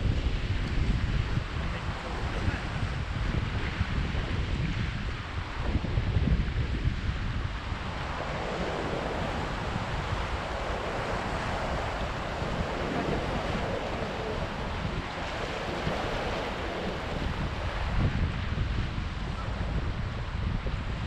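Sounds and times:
wind buffeting microphone: 0:00.0 - 0:21.0
surf breaking over rocks: 0:05.4 - 0:20.5.

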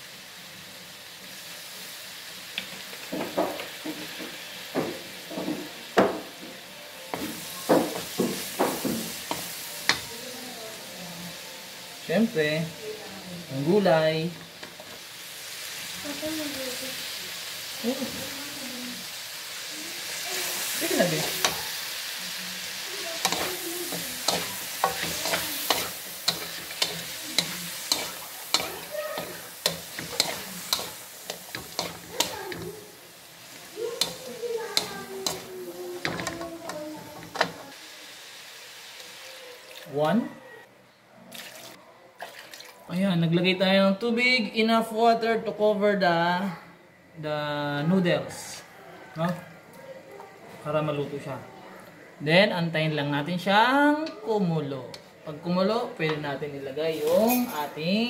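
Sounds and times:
oil sizzling: 0:00.0 - 0:40.4, 0:41.2 - 0:43.0, 0:52.7 - 0:58.0
spatula scraping metal wok: 0:23.2 - 0:32.9, 0:33.6 - 0:37.7.

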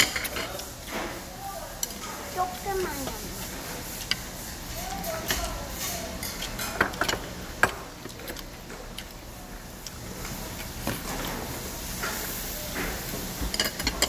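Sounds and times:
spoons clinking on metal bowls: 0:05.1 - 0:07.3, 0:13.5 - 0:14.0.

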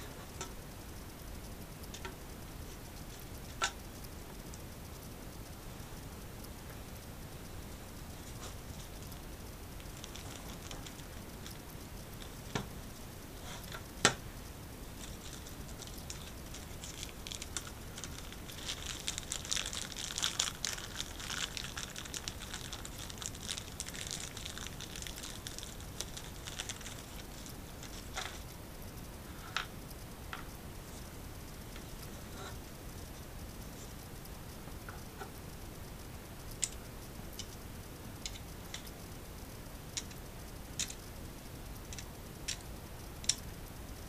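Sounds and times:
plastic bag crinkling: 0:09.8 - 0:11.6, 0:14.9 - 0:28.4.

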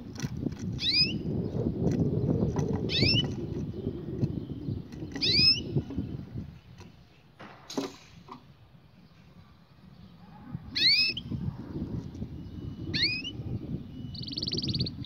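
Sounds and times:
canary chirping: 0:00.8 - 0:06.8, 0:10.0 - 0:11.4, 0:12.0 - 0:15.0.

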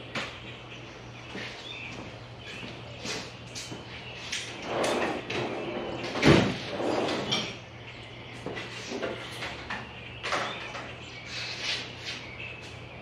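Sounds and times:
metal drawers sliding: 0:04.4 - 0:07.6.

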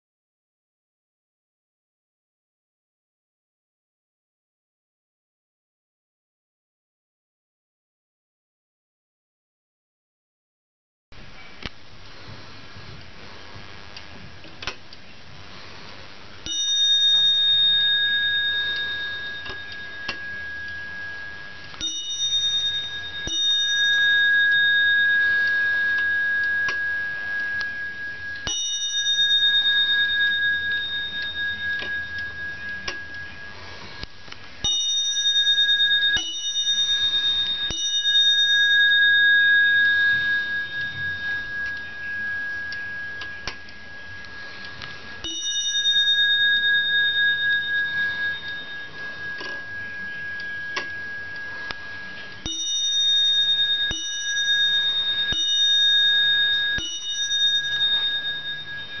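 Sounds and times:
clock bell strikes: 0:16.4 - 0:34.0, 0:34.6 - 0:59.0.

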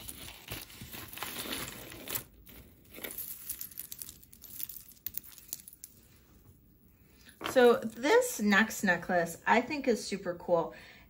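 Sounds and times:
packaging crinkling: 0:00.0 - 0:06.2
small jewelry clicks: 0:02.9 - 0:06.0.

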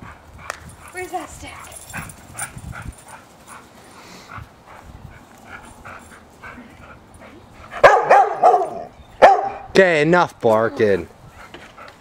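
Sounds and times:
dog barking: 0:07.8 - 0:09.7.

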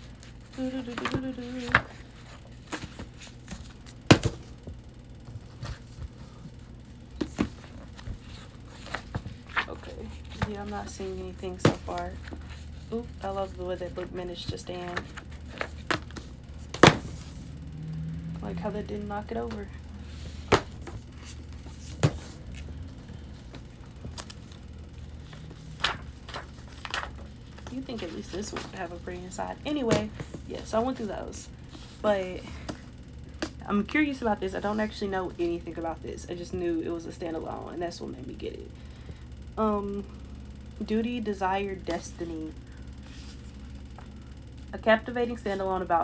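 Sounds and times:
book covers knocking and tapping: 0:02.6 - 0:06.1, 0:07.2 - 0:08.2, 0:11.4 - 0:12.5, 0:14.4 - 0:17.3, 0:20.4 - 0:21.1, 0:21.7 - 0:22.8, 0:29.8 - 0:30.5
book thump: 0:15.9 - 0:17.2, 0:21.9 - 0:22.4
book cover clicks and rustles: 0:25.8 - 0:27.7.

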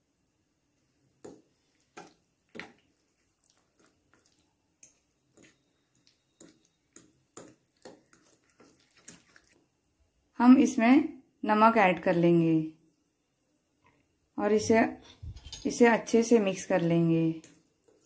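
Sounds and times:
spoon squelching in thick mixture: 0:00.6 - 0:09.8, 0:15.2 - 0:18.0.

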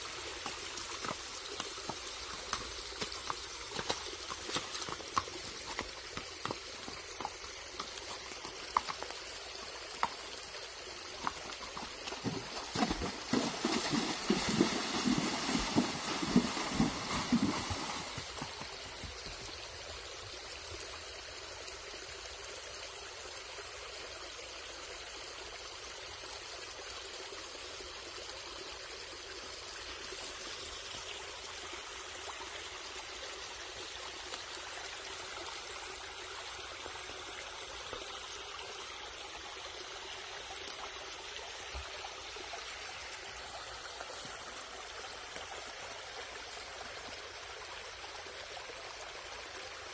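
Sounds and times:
creek trickling: 0:00.0 - 0:49.9
hooves splashing through water: 0:00.1 - 0:09.2, 0:11.1 - 0:19.5
hooves striking rock: 0:11.2 - 0:19.2.

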